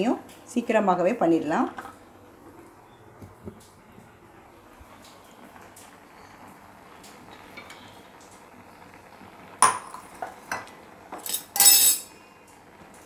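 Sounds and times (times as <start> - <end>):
metal utensils clinking on pot: 9.6 - 12.1.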